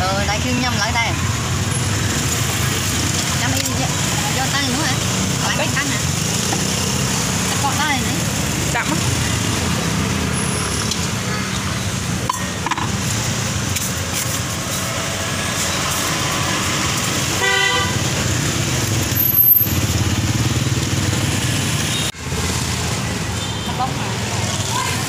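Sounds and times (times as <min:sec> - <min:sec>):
street traffic engines: 0:00.0 - 0:25.0
car horn toot: 0:17.4 - 0:18.0.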